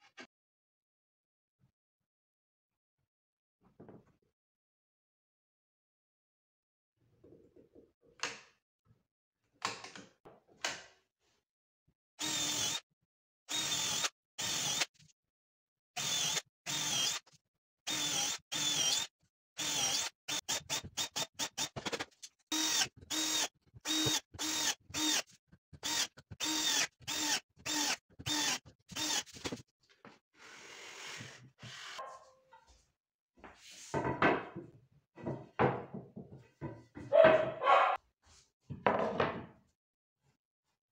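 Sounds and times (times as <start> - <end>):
drill whining into wood: 12.2 - 12.8, 13.5 - 14.9, 16.0 - 17.3, 17.9 - 21.7, 22.5 - 29.6.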